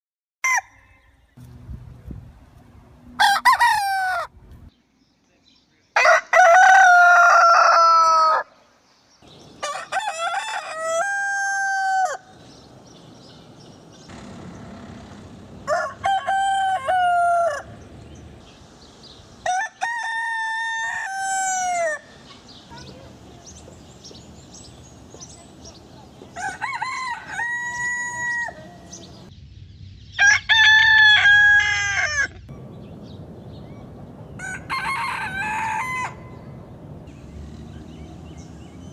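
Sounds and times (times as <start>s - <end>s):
rooster crowing: 0.4s - 1.0s, 3.2s - 4.3s, 6.0s - 8.6s, 9.6s - 12.3s, 15.6s - 17.8s, 19.4s - 22.1s, 26.3s - 29.0s, 30.2s - 32.4s, 34.4s - 36.5s.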